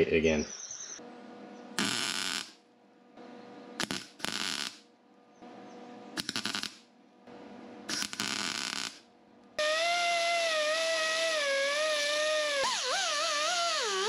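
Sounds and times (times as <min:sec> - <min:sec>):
mig welder welding: 0:01.8 - 0:02.6, 0:03.8 - 0:04.9, 0:06.2 - 0:06.9, 0:07.9 - 0:14.0.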